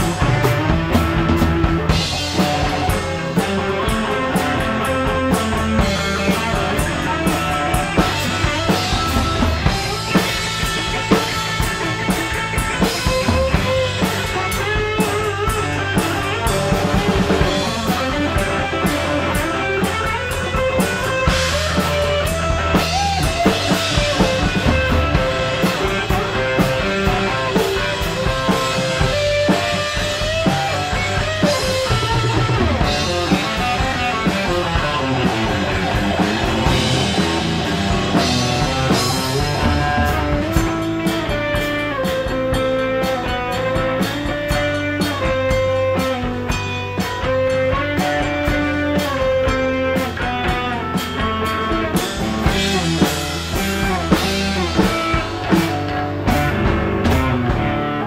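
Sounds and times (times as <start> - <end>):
rock band playing: 0.0 - 58.0.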